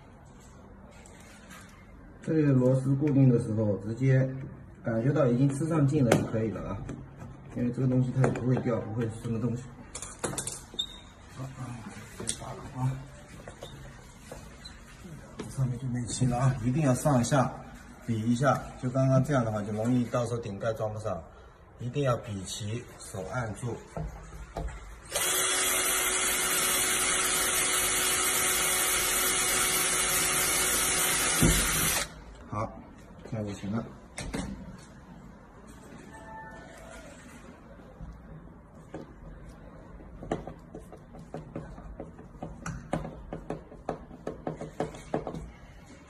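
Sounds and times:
cordless drill drilling metal: 25.1s - 32.2s.

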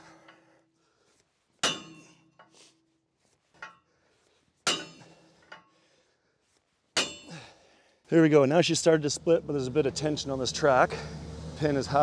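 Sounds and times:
sledgehammer striking metal: 1.6s - 2.2s, 4.7s - 5.2s, 7.0s - 7.5s.

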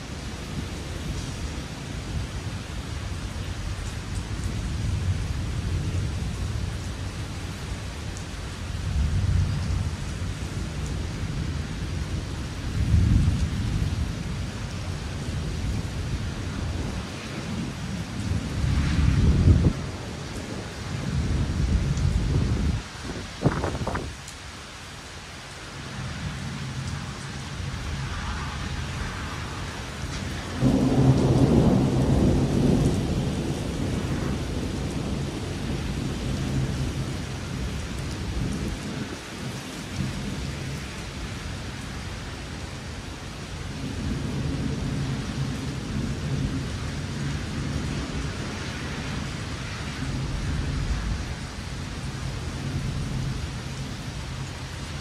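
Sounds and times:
steady rain: 0.0s - 55.0s
rolling thunder: 15.3s - 24.2s, 27.9s - 39.2s
loud thunderclap: 30.5s - 35.8s.

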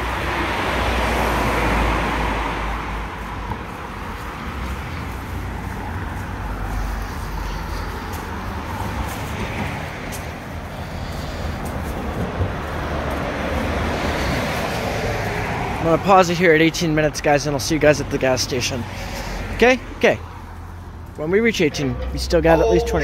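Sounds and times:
car passing close by: 0.0s - 6.8s, 11.7s - 16.0s
low traffic rumble: 0.0s - 23.0s
traffic hiss: 0.0s - 23.0s.

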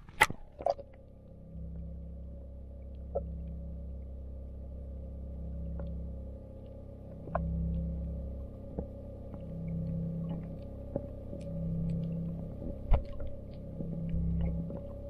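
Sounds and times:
sharp clicks underwater: 0.0s - 1.9s, 2.8s - 3.7s, 6.6s - 15.0s
muffled underwater rumble: 0.0s - 15.0s.

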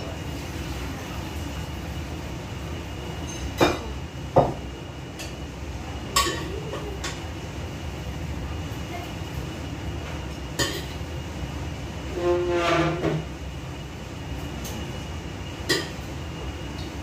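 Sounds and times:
pots clinking: 10.5s - 11.0s, 15.6s - 16.1s.

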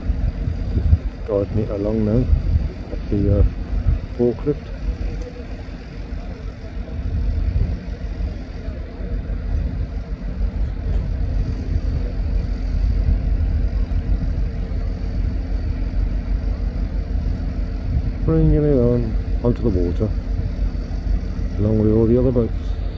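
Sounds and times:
faint steady hum: 0.0s - 22.9s
forklift engine rumbling: 0.0s - 22.9s.

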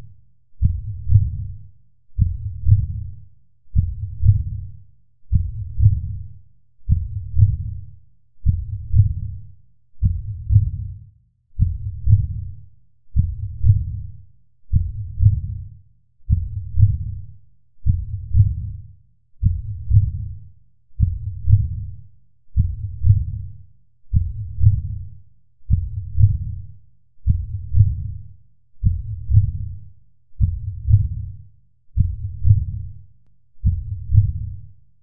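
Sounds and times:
slow heartbeat: 0.6s - 1.6s, 2.2s - 4.7s, 5.3s - 7.8s, 8.4s - 9.4s, 10.0s - 11.0s, 11.6s - 12.6s, 13.2s - 15.7s, 16.3s - 18.8s, 19.4s - 20.4s, 21.0s - 22.0s, 22.6s - 25.1s, 25.7s - 33.0s, 33.6s - 34.8s.

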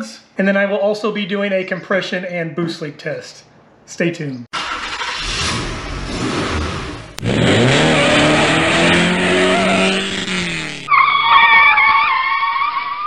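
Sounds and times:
car engine revving: 4.6s - 10.9s.

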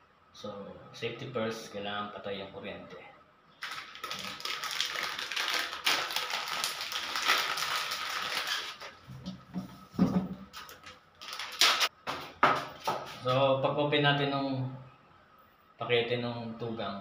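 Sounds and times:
plastic packaging crinkling: 3.6s - 9.1s, 10.5s - 11.9s.

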